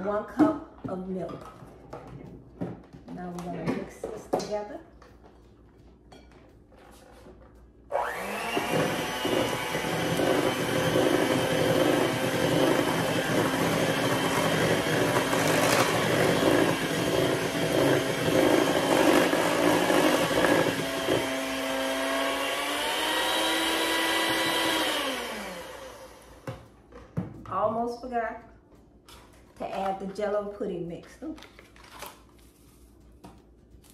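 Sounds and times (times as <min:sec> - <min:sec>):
electric hand mixer motor whining: 0:07.9 - 0:26.5.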